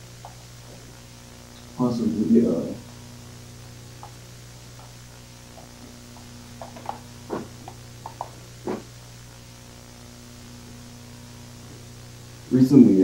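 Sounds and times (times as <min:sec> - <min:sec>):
low electrical hum: 0:00.0 - 0:13.0
footsteps on tiled floor: 0:06.6 - 0:07.8, 0:08.6 - 0:08.9.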